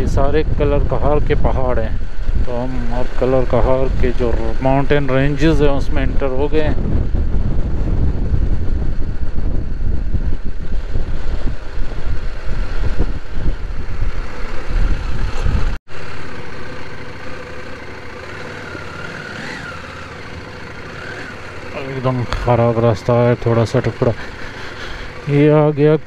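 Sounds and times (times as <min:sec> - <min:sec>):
wind on microphone: 0:00.0 - 0:15.8
motorcycle running: 0:00.0 - 0:26.0.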